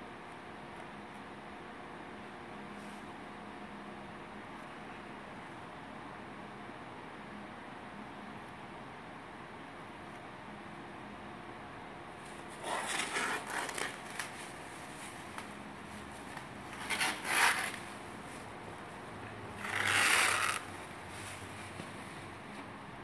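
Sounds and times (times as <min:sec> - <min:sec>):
plastic film rustling: 0:12.2 - 0:22.6.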